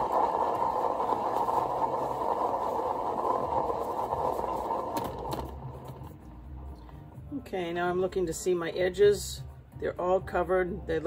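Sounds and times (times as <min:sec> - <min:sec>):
paint spinner whirring: 0:00.0 - 0:06.2.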